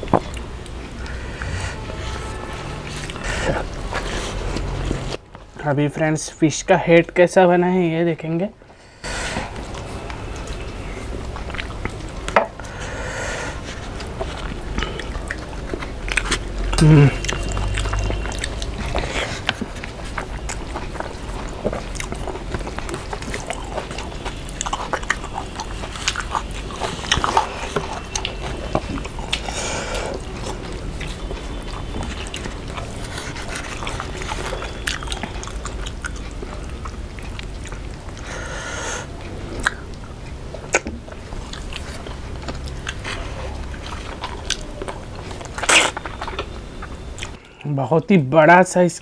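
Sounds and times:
chewing and biting: 0.0s - 5.2s, 9.4s - 12.8s, 13.5s - 47.6s
sharp mouth clicks and smacks: 39.6s - 47.7s.

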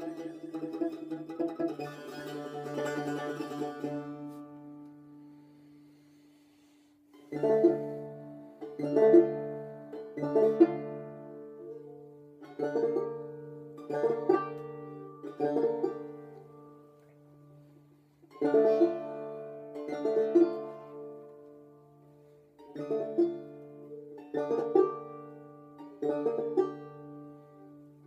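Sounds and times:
plucked lute notes ringing: 0.0s - 5.7s, 7.1s - 17.7s, 18.3s - 28.0s
low strings sounding: 0.0s - 6.2s, 7.1s - 28.0s.

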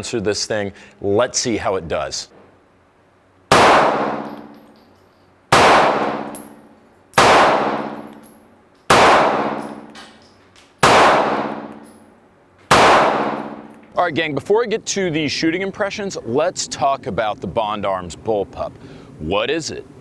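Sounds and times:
pistol shots echoing indoors: 3.5s - 4.6s, 5.5s - 6.5s, 7.2s - 8.2s, 8.9s - 10.0s, 10.8s - 11.9s, 12.7s - 13.7s.

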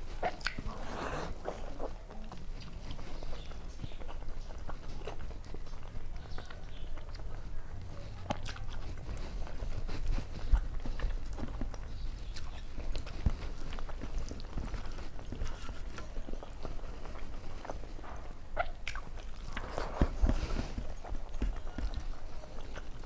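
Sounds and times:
chewing with lip smacks: 0.0s - 23.0s
squelches of food mixed by hand: 0.0s - 23.0s.

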